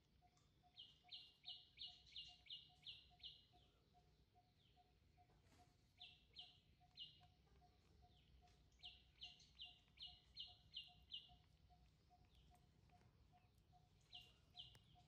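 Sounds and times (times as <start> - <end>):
faint bird chirping: 0.0 - 15.0
faint steady ticking: 6.2 - 15.0.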